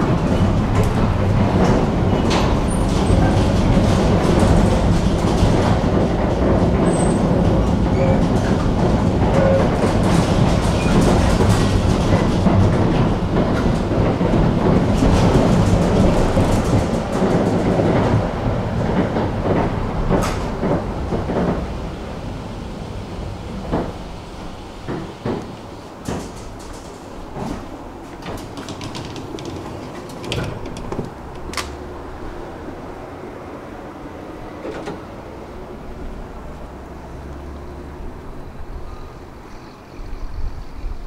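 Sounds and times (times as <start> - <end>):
clicks over rail joints: 0.0 - 21.7, 24.8 - 32.1
tram wheels rumbling on rails: 0.0 - 41.0.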